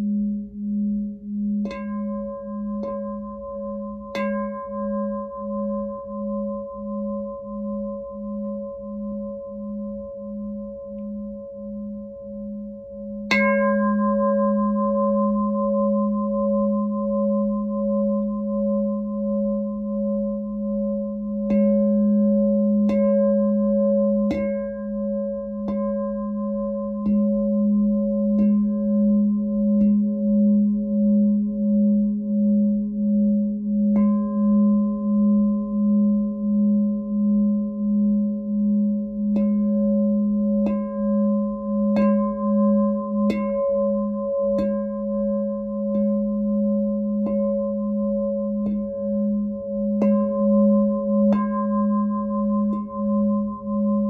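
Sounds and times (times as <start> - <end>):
glass singing bowl ringing: 1.6 - 32.8, 33.8 - 54.0
singing bowl strikes: 13.3 - 18.3, 40.6 - 46.2, 48.6 - 54.0.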